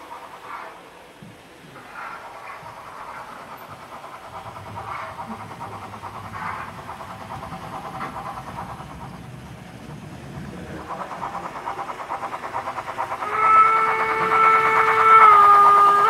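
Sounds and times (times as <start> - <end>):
steam locomotive chuffing: 0.0 - 16.0
steam whistle: 13.2 - 16.0.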